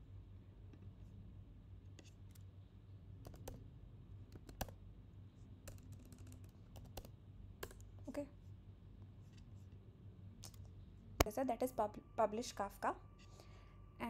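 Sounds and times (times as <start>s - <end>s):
keyboard keys clicking: 3.2s - 3.6s, 4.3s - 4.8s, 5.7s - 7.9s
low hum: 7.2s - 14.0s.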